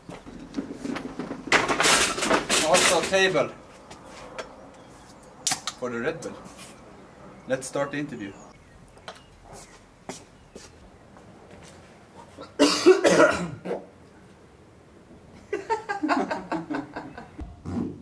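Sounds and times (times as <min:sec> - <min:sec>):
man coughing: 0:12.4 - 0:13.8.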